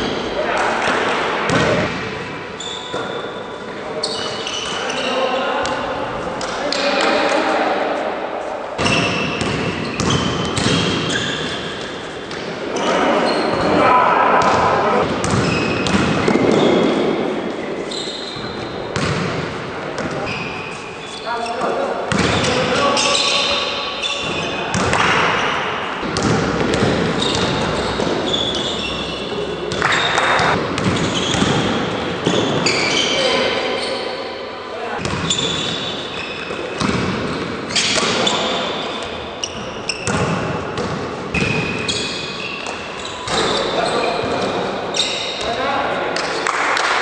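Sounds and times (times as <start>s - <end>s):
sneakers squeaking on floor: 1.5s - 7.2s, 8.8s - 46.5s
basketball bouncing on court: 8.8s - 11.4s, 14.4s - 17.0s, 18.4s - 20.4s, 22.1s - 22.6s, 24.2s - 25.4s, 26.0s - 28.5s, 29.7s - 32.8s, 35.0s - 38.4s, 39.4s - 42.0s.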